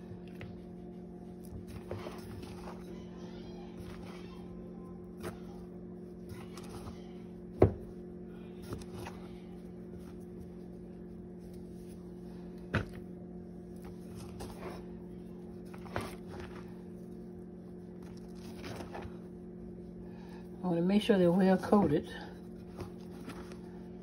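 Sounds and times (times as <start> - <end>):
steady low hum: 0.0 - 24.0
chicken rustling in breading: 13.5 - 20.9.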